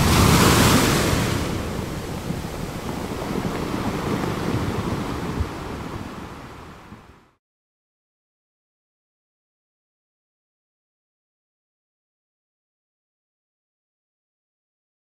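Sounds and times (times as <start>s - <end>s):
ocean surf washing: 0.0s - 7.4s.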